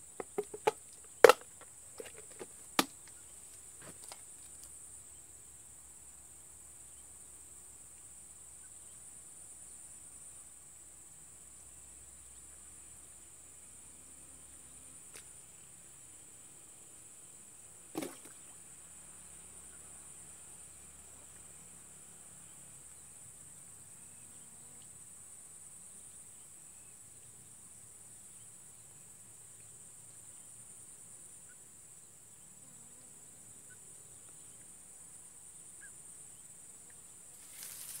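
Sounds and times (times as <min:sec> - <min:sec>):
high-pitched insect chorus: 0:14.4 - 0:38.0.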